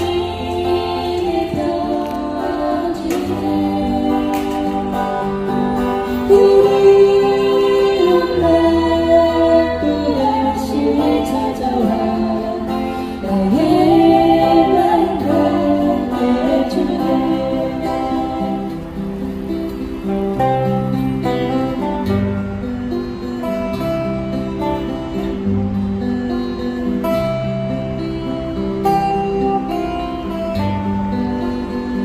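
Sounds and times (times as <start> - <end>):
women singing: 0.0 - 18.8
acoustic guitars: 0.0 - 32.0.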